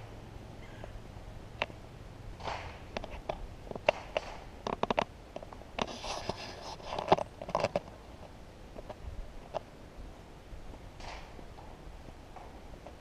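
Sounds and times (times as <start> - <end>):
scraping rustles: 2.4 - 9.7.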